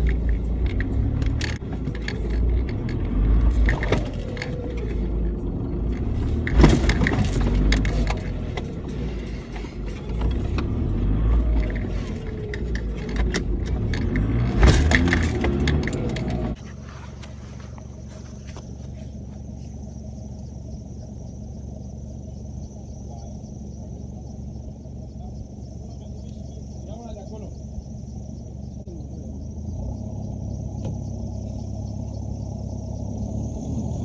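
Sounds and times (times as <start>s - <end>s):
engine and drivetrain rumble: 0.0s - 34.0s
vehicle body knocks and rattles: 5.9s - 10.8s, 11.6s - 16.6s.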